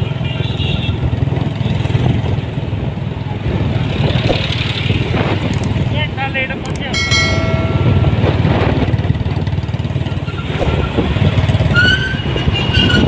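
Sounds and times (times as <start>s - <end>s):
rising high-pitched tones: 7.0s - 8.8s
motorcycle engine running: 7.0s - 10.3s.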